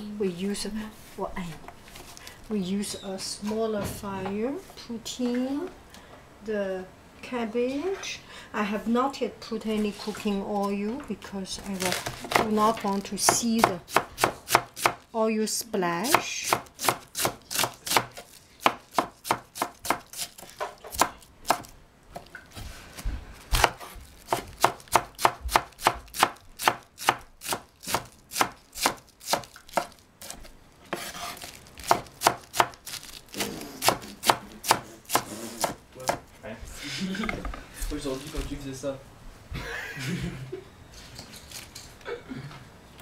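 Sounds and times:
knife slicing cabbage on board: 0:11.8 - 0:15.0, 0:16.1 - 0:22.7, 0:23.4 - 0:36.2.

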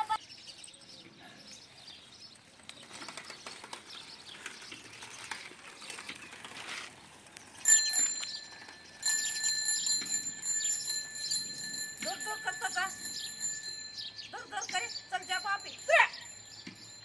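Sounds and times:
faint outdoor background noise: 0:00.0 - 0:17.0
bicycle bell ringing: 0:07.6 - 0:17.0.

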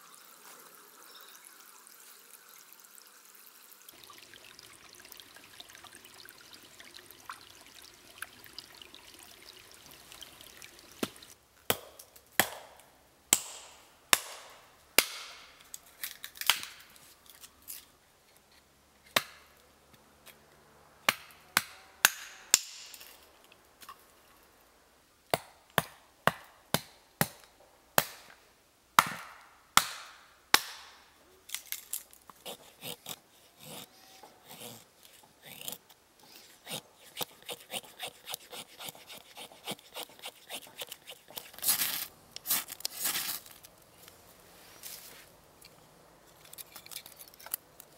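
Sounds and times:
hatchet chopping wood: 0:11.0 - 0:15.5, 0:19.2 - 0:19.4, 0:21.1 - 0:23.0, 0:25.3 - 0:28.3, 0:29.0 - 0:31.0.

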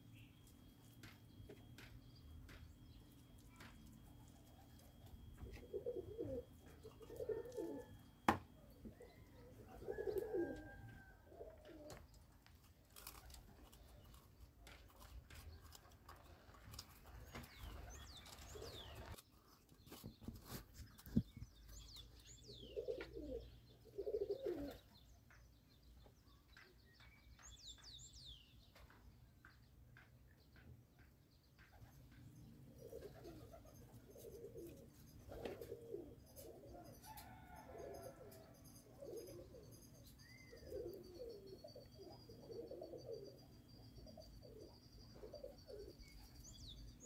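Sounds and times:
doves cooing faintly: 0:02.5 - 0:19.2, 0:20.0 - 0:25.1, 0:31.6 - 0:47.0
small birds chirping: 0:11.4 - 0:36.6, 0:39.0 - 0:47.0.

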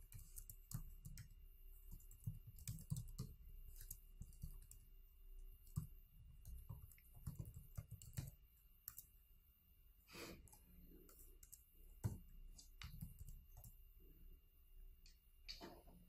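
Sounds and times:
typing on computer keyboard: 0:00.0 - 0:04.8, 0:05.6 - 0:09.1, 0:10.5 - 0:12.2.

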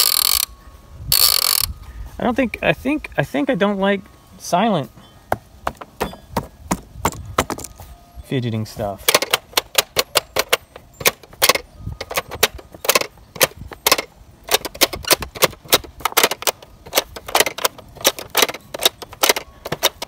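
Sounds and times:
plastic toy clicking and snapping: 0:01.1 - 0:01.7, 0:09.1 - 0:20.0.

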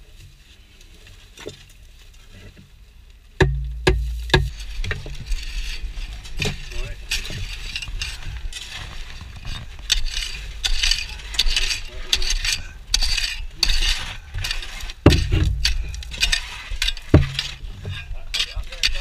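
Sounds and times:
heavy thud: 0:03.4 - 0:04.6, 0:15.1 - 0:16.3, 0:17.2 - 0:17.6
metal tool scraping sand: 0:03.4 - 0:19.0.

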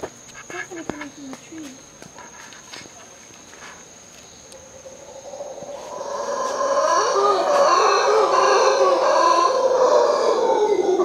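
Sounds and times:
howler monkeys calling: 0:04.3 - 0:11.0.

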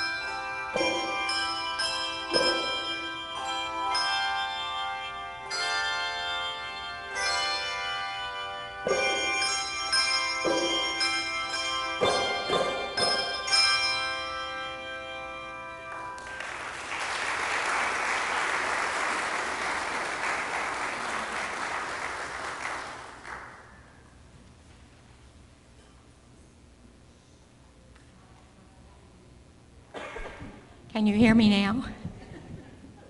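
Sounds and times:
handbell chords ringing: 0:00.0 - 0:16.2
audience applause: 0:16.2 - 0:23.8.

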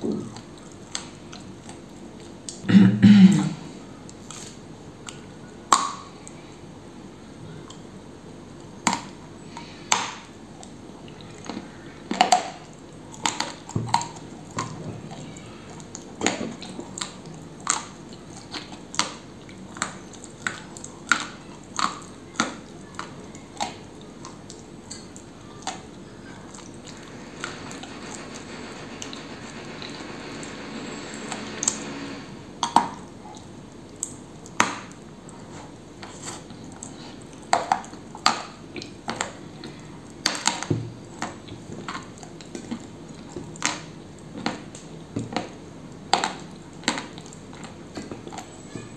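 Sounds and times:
soft grinding chews: 0:04.1 - 0:05.3, 0:32.9 - 0:39.9.

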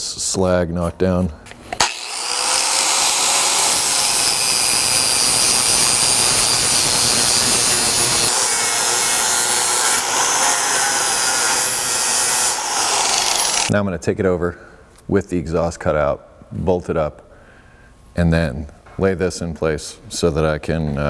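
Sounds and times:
angle grinder grinding steel: 0:01.8 - 0:13.7.

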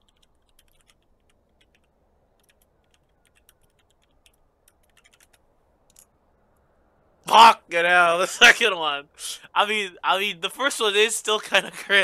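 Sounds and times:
faint keyboard typing: 0:00.0 - 0:06.7.

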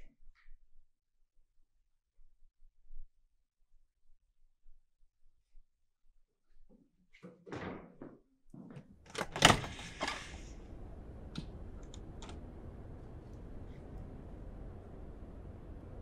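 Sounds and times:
low room hum: 0:09.0 - 0:16.0
faint clicks: 0:09.7 - 0:16.0.

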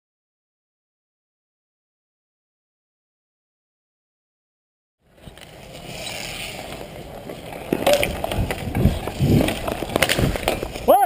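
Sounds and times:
hockey sticks scraping and clacking: 0:05.1 - 0:11.0.

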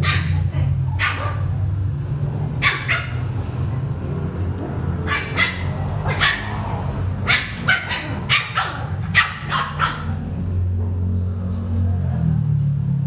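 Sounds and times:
small dogs barking: 0:00.0 - 0:01.8, 0:02.4 - 0:10.4.

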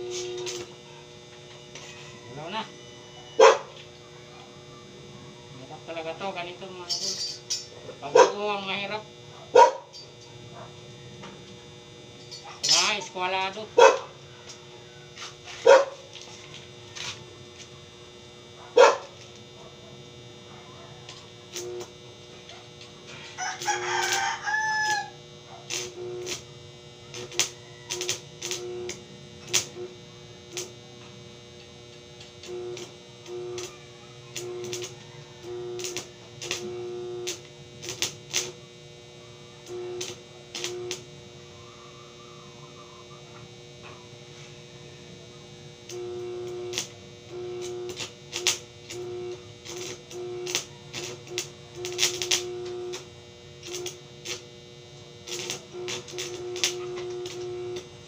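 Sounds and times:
faint steady hum: 0:00.0 - 0:58.0
rooster crowing: 0:01.8 - 0:04.8, 0:13.8 - 0:15.8, 0:23.1 - 0:25.2, 0:27.0 - 0:28.2, 0:34.7 - 0:36.3, 0:41.4 - 0:43.2.

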